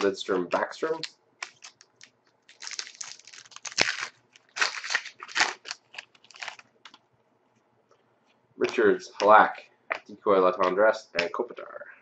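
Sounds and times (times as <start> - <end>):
wrapper tearing and crinkling: 0.8 - 6.7.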